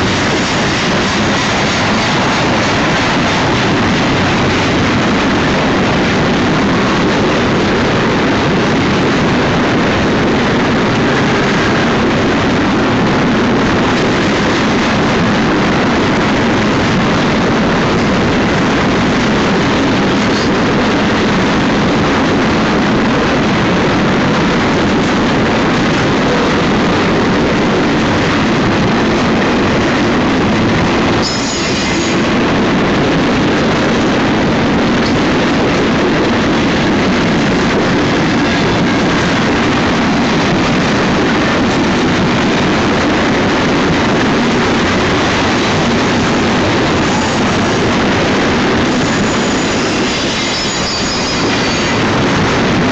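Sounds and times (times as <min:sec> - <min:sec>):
train wheels rumbling on rail: 0:00.0 - 0:52.9
high-pitched squeal: 0:31.1 - 0:32.4, 0:48.8 - 0:52.0.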